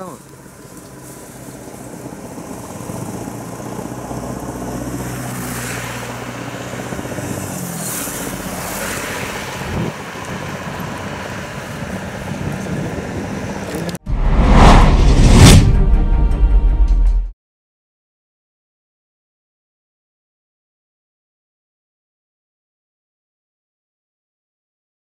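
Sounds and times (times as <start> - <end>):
vehicle engine running: 0.0 - 14.0.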